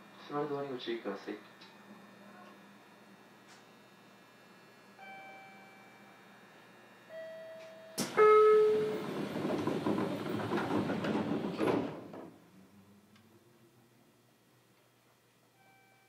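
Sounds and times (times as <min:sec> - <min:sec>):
door chime tones: 0:05.0 - 0:06.1, 0:07.1 - 0:09.2, 0:15.6 - 0:16.0
train doors sliding shut: 0:07.5 - 0:12.4
door clack: 0:08.0 - 0:12.4.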